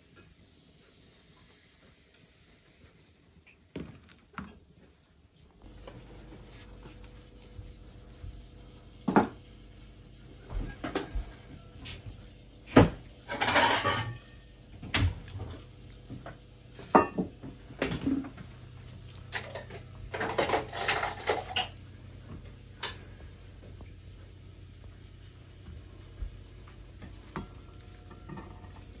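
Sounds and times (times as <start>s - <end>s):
crockery and cutlery clattering: 19.3s - 21.8s.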